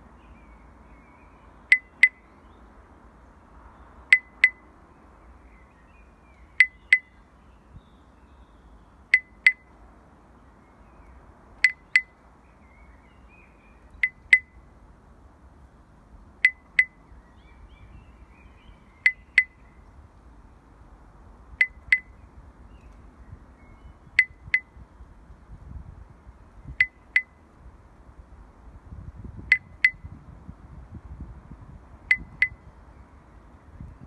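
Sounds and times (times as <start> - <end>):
faint low hiss: 0.0 - 34.0
double high clicks with ringing tone: 1.7 - 2.2, 4.1 - 4.7, 6.6 - 7.2, 9.1 - 9.7, 11.6 - 12.2, 14.0 - 14.6, 16.4 - 17.0, 19.0 - 19.6, 21.6 - 22.1, 24.2 - 24.7, 26.7 - 27.4, 29.5 - 30.1, 32.1 - 32.6.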